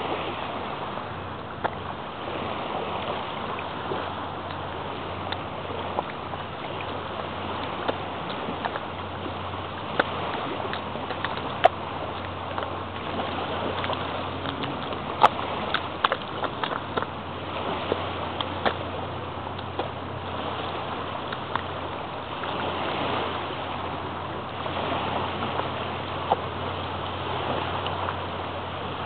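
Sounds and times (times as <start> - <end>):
bare feet stepping in wet mud: 3.9 - 23.7.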